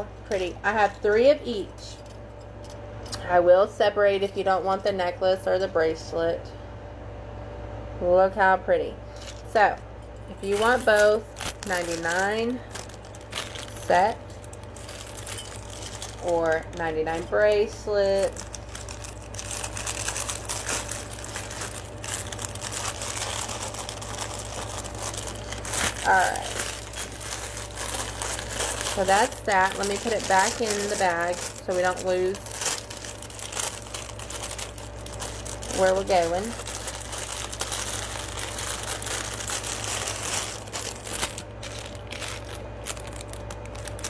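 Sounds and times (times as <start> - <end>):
steady low hum: 0.0 - 44.0
rustling and crinkling: 9.1 - 44.0
jewelry clinking into bag: 10.1 - 44.0.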